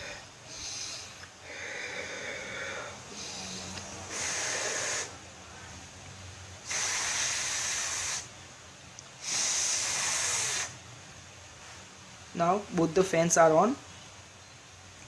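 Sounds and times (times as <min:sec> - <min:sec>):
person blowing breaths: 0:00.0 - 0:05.2, 0:06.6 - 0:08.3, 0:09.2 - 0:10.8
small cooling fans: 0:00.0 - 0:15.0.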